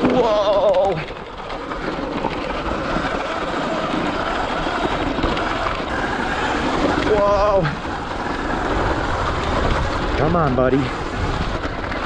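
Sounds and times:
tyres crunching over stones: 0:00.0 - 0:12.0
wind on microphone: 0:04.2 - 0:12.0.

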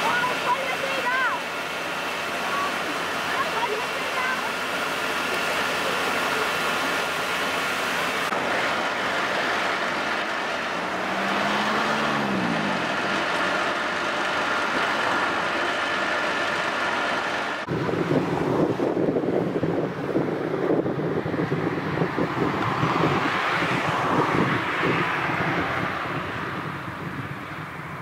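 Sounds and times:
outdoor noise: 0:00.0 - 0:28.0
vehicle engines running: 0:00.0 - 0:28.0
vehicle passing: 0:08.2 - 0:16.5, 0:21.6 - 0:28.0.

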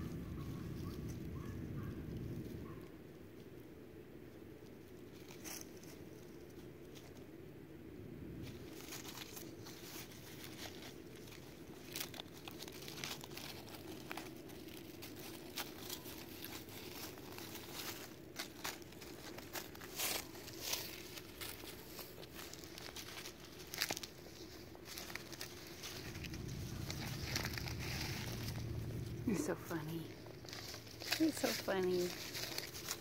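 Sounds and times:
dry leaves crunching: 0:08.4 - 0:33.0.

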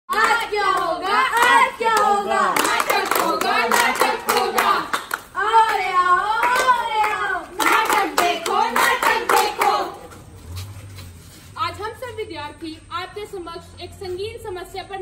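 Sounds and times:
people clapping in a steady beat: 0:00.1 - 0:10.1
people chanting together: 0:00.1 - 0:10.3.

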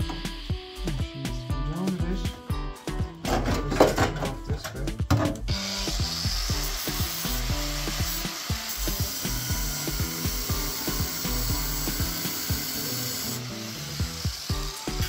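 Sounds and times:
background music with steady beat: 0:00.0 - 0:15.0
angle grinder cutting sheet steel: 0:05.5 - 0:15.0.

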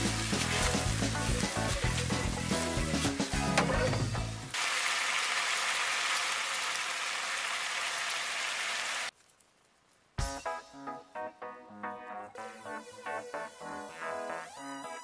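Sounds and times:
sauce sizzling in a frying pan: 0:00.0 - 0:03.3, 0:04.5 - 0:09.1
background music with a beat: 0:00.0 - 0:04.5, 0:10.2 - 0:15.0.

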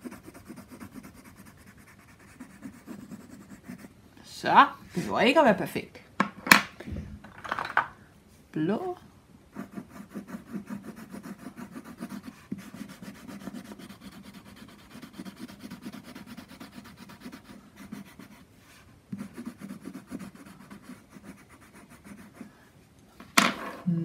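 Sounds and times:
pencil scratching on paper: 0:00.0 - 0:03.9, 0:09.5 - 0:22.6.

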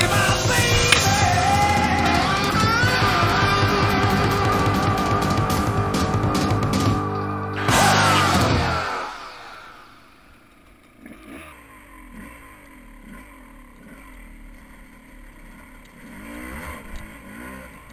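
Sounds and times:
loud backing music: 0:00.0 - 0:09.7
dirt bike engine revving: 0:00.0 - 0:17.9.

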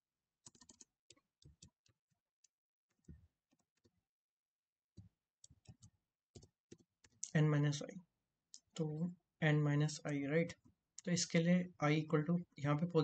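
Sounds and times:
keyboard typing: 0:00.4 - 0:02.0.

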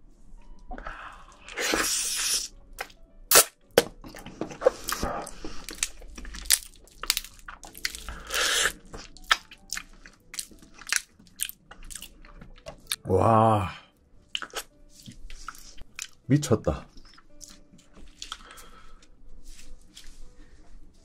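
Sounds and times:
slurping crab meat: 0:01.2 - 0:02.5, 0:07.2 - 0:11.0
crunching and chewing: 0:03.9 - 0:13.1, 0:14.3 - 0:16.2, 0:16.9 - 0:19.1.

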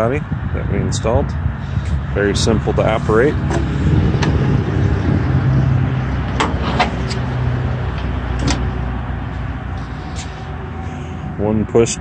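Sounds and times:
liftgate motor hum: 0:03.3 - 0:10.0.

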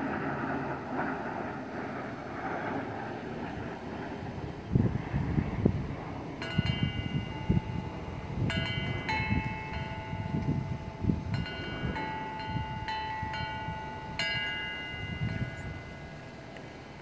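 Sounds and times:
wind rumble on microphone: 0:00.0 - 0:17.0
wind chimes ringing: 0:06.4 - 0:16.9.

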